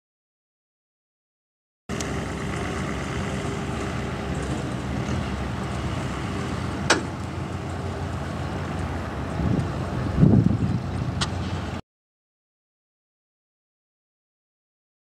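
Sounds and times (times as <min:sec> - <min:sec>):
truck engine and road hum: 0:01.9 - 0:11.8.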